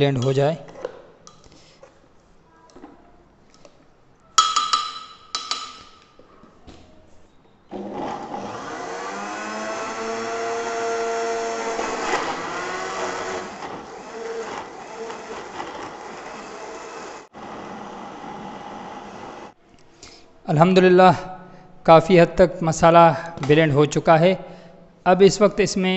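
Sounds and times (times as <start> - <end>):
electric blender grinding: 7.7 - 19.6.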